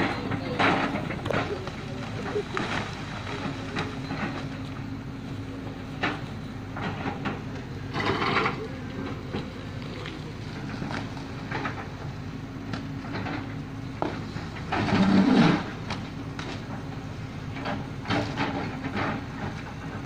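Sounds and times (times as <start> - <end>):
bucket clanking and scraping on rock: 0.0 - 4.7, 6.8 - 11.8, 14.1 - 15.8
excavator diesel engine running: 0.0 - 20.0.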